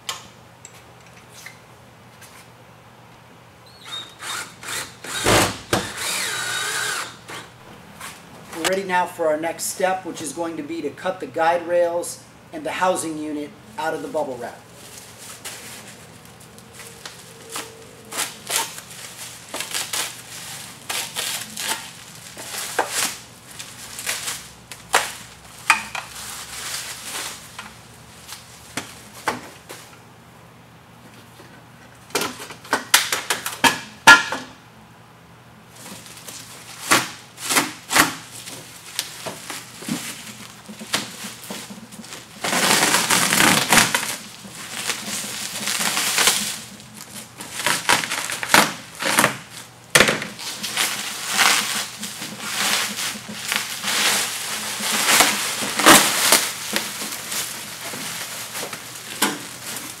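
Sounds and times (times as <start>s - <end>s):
bubble wrap crackling: 14.6s - 29.2s, 35.7s - 60.0s
tearing rustle: 14.8s - 25.4s, 26.1s - 27.6s, 35.8s - 49.7s, 50.4s - 60.0s.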